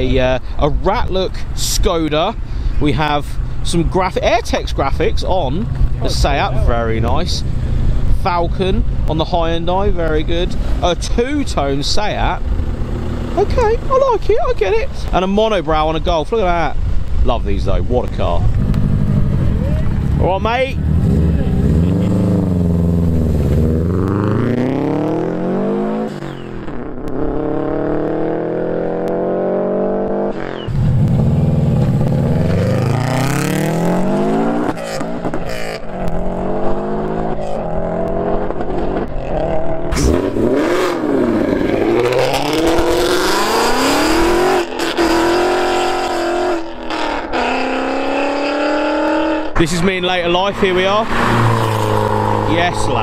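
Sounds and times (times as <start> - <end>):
car engines revving through gears: 18.5 - 49.6, 50.4 - 53.0.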